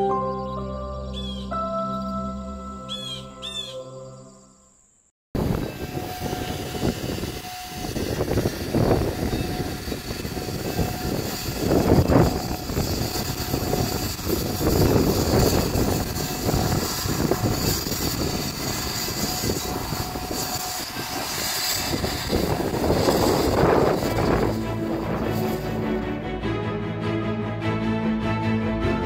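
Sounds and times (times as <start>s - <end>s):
wind buffeting microphone: 5.4s - 25.8s
steam locomotive hissing: 5.4s - 26.2s.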